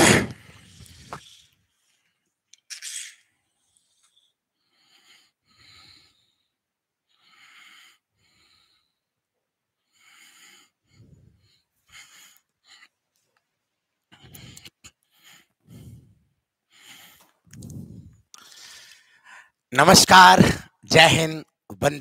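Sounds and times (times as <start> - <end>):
short breaths close to microphone: 3.4 - 9.2, 9.8 - 13.0, 14.1 - 19.6.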